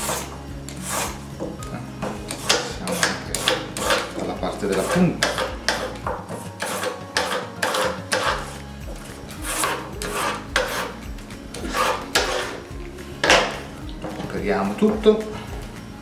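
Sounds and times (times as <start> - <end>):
peeler scraping asparagus: 0.0 - 15.2.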